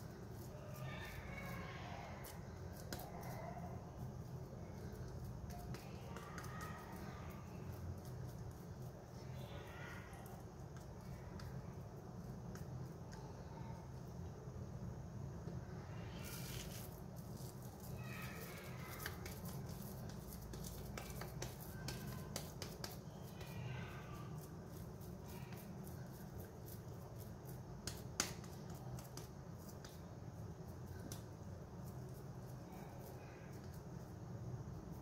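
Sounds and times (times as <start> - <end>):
hands kneading wet mixture: 0.0 - 35.0.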